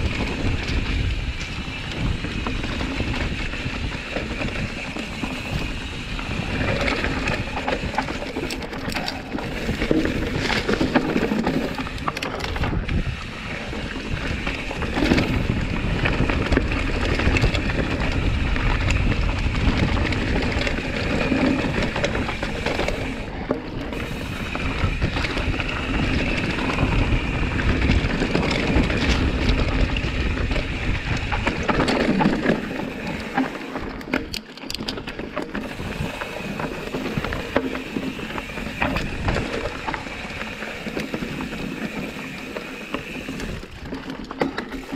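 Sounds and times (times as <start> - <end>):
wind buffeting microphone: 0.0 - 44.0
bike rattling and knocking: 0.0 - 44.9
bike tyres rumbling on dirt trail: 0.0 - 44.9.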